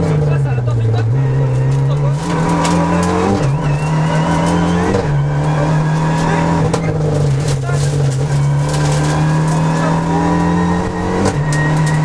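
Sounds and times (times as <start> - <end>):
rally car engine under load: 0.0 - 12.0.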